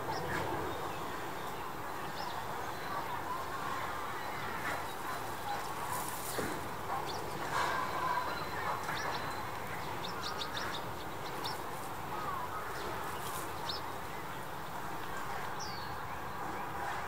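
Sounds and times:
small birds chirping: 0:00.0 - 0:16.9
steady background noise: 0:00.0 - 0:17.0.

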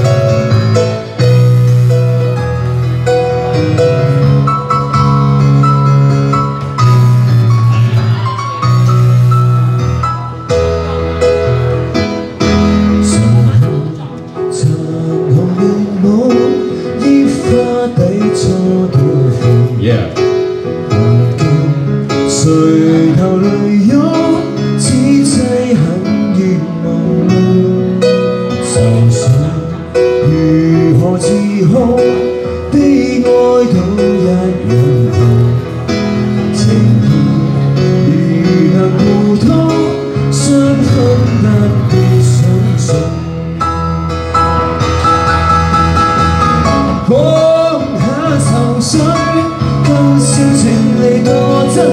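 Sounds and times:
electronic keyboard chords: 0:00.0 - 0:51.9
man singing: 0:12.5 - 0:43.5, 0:46.6 - 0:51.9.

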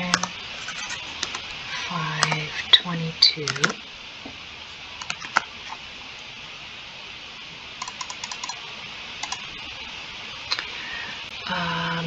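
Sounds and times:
faint steady hiss: 0:00.0 - 0:12.0
keyboard keystrokes: 0:07.8 - 0:08.6.

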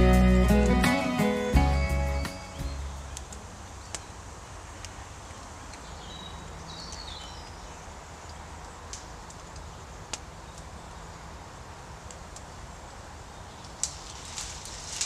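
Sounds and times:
birds chirping: 0:00.0 - 0:07.9
background hiss: 0:00.0 - 0:15.0.

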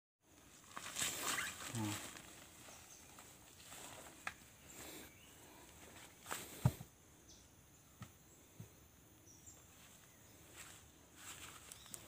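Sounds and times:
faint forest background: 0:00.2 - 0:12.0
footsteps on forest ground: 0:00.4 - 0:05.0, 0:05.7 - 0:06.8, 0:09.5 - 0:12.0.

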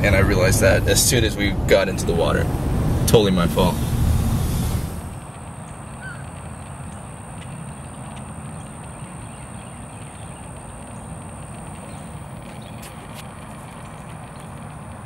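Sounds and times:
high-pitched whine: 0:00.0 - 0:11.2
low rumble and hiss: 0:00.0 - 0:15.0
faint ticks: 0:05.2 - 0:15.0.

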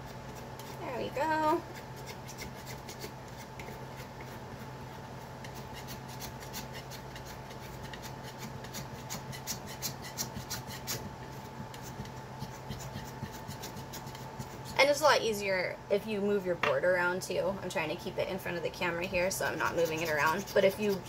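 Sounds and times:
palette knife scraping paper tape: 0:02.0 - 0:04.4, 0:05.4 - 0:11.1, 0:11.7 - 0:14.8, 0:19.5 - 0:21.0.

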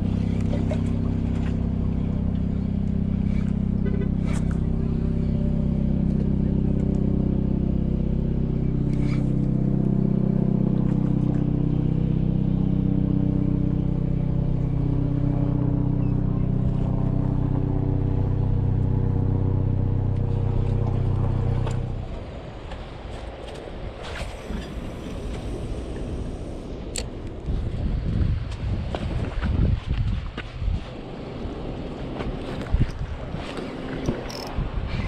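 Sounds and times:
engine droning: 0:00.0 - 0:35.0.

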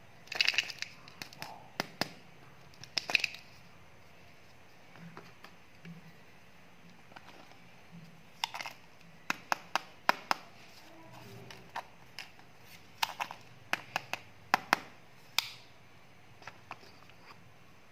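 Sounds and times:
plastic eggs clicking together: 0:00.2 - 0:03.4.

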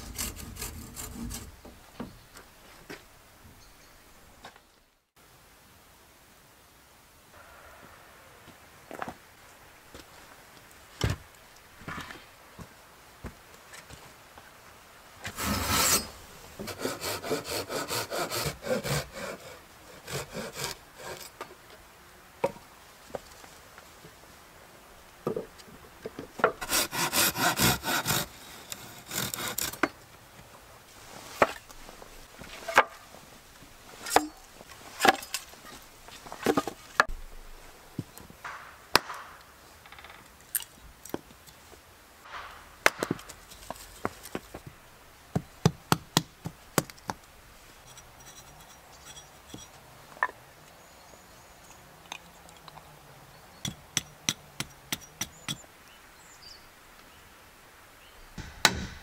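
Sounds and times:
hand saw cutting wood: 0:00.0 - 0:01.6, 0:15.3 - 0:21.4, 0:26.6 - 0:29.9
hatchet splitting kindling: 0:15.3 - 0:19.0
wood splitting knocks: 0:58.4 - 0:59.0.

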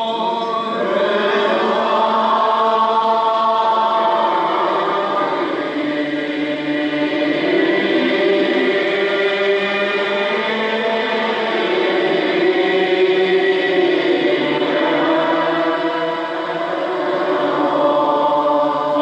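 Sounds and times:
congregation singing a psalm: 0:00.0 - 0:19.0.

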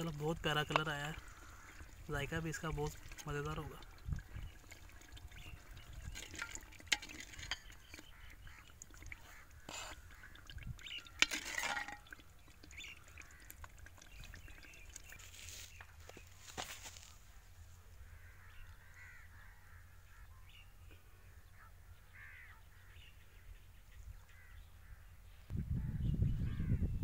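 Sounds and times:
steel ladle knocking on clay pot: 0:00.6 - 0:01.9, 0:06.1 - 0:08.8, 0:11.0 - 0:12.2.

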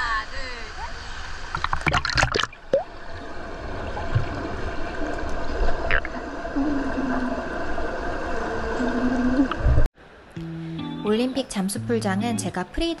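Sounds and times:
muffled underwater rush of water: 0:01.0 - 0:09.9.

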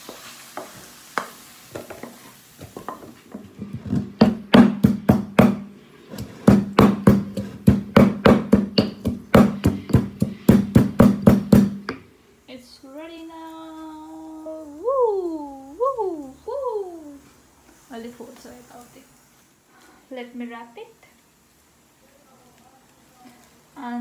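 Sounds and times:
pestle pounding in stone mortar: 0:03.6 - 0:12.0.

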